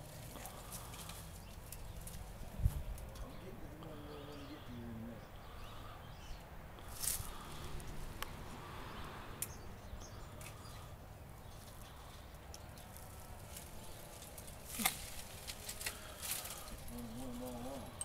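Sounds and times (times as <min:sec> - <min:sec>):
faint outdoor background: 0:00.0 - 0:18.0
pruning shears snipping branches: 0:12.5 - 0:17.6.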